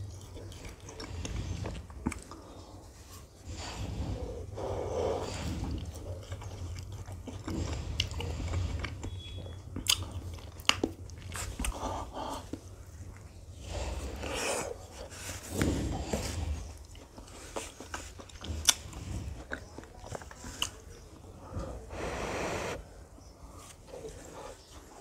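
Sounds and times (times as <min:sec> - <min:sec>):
biting and crunching frozen dessert: 0:00.0 - 0:21.2
wet chewing: 0:00.0 - 0:22.8.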